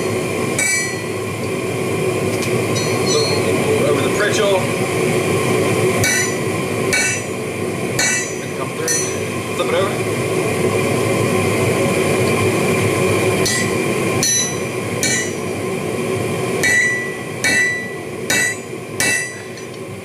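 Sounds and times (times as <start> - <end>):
hammer striking steel punch: 0.6 - 1.1, 2.8 - 3.4, 6.0 - 7.3, 8.0 - 9.2, 13.5 - 15.4, 16.6 - 19.7.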